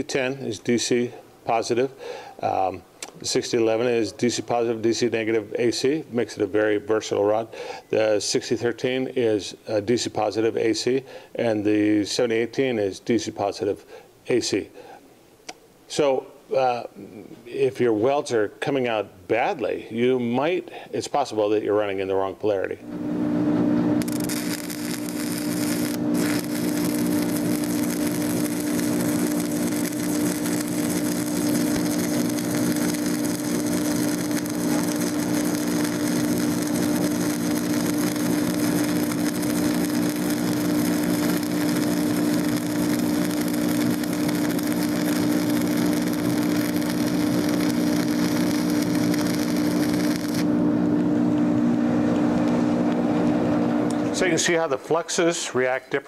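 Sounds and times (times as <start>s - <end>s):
low hum: 22.9s - 51.5s
welding arc crackling: 24.0s - 50.6s.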